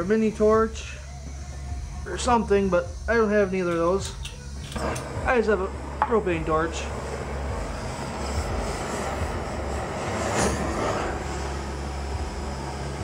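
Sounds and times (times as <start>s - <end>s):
propane torch hissing: 0.0s - 13.0s.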